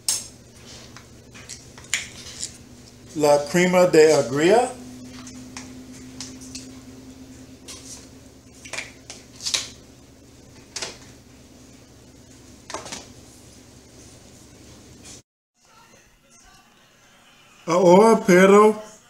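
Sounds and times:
faint steady hum: 0:00.0 - 0:15.2.

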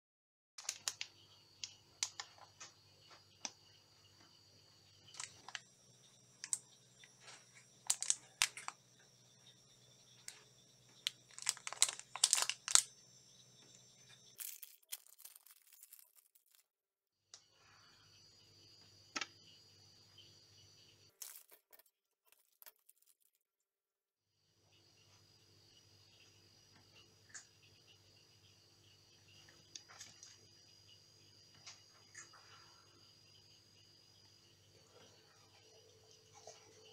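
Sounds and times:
plastic wrapper crinkling: 0:00.6 - 0:01.0, 0:07.8 - 0:08.8, 0:11.0 - 0:12.9, 0:14.4 - 0:16.7
faint steady hum: 0:00.6 - 0:16.0, 0:17.3 - 0:21.1
wrapper tearing open: 0:07.9 - 0:08.7, 0:11.3 - 0:12.9, 0:14.4 - 0:16.6.

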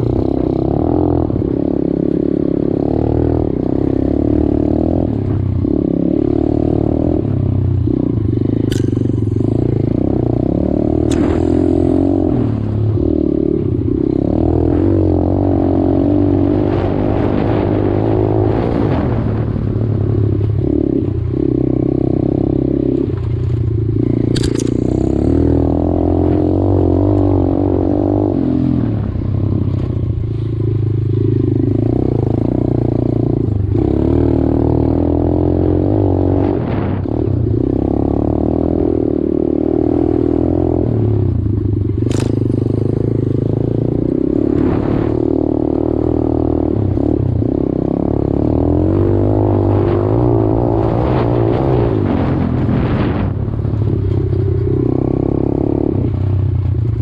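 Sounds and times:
dirt bike engine revving: 0:00.0 - 0:29.1, 0:42.0 - 0:56.1
sharp click: 0:08.6 - 0:09.5, 0:11.0 - 0:12.0, 0:24.3 - 0:25.2, 0:42.0 - 0:42.7.

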